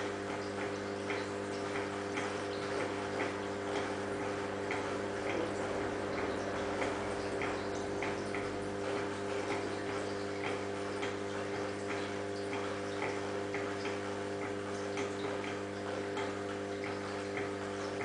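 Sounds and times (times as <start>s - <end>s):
aquarium pump humming: 0.0s - 18.0s
water dripping: 0.0s - 18.0s.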